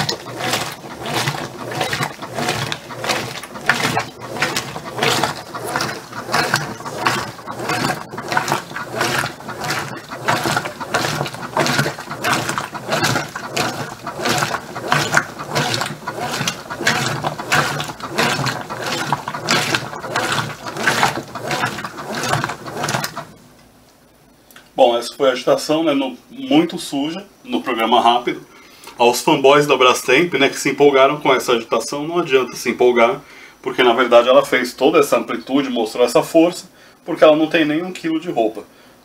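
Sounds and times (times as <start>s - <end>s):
motor and gearing working: 0.0s - 23.4s
washing machine agitating: 0.0s - 23.6s
water sloshing: 0.0s - 23.6s.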